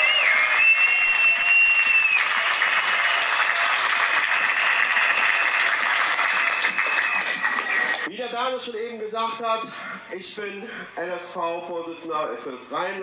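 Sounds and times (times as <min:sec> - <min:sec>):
crowd applauding and cheering: 0:00.0 - 0:08.1.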